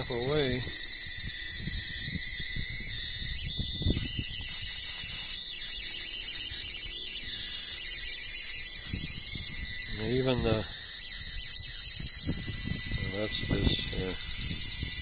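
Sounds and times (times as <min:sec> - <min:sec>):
high-pitched electrical whine: 0:00.0 - 0:15.0.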